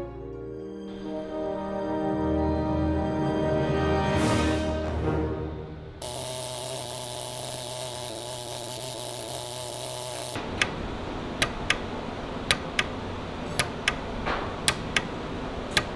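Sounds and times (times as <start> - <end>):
steady low hum: 5.8 - 15.9
welding pen clicks: 11.4 - 11.9.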